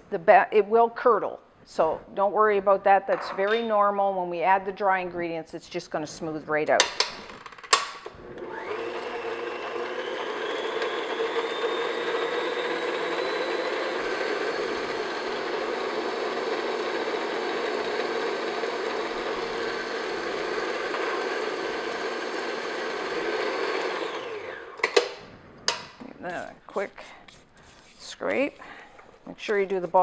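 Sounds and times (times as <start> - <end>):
stand mixer motor whine: 8.1 - 25.1.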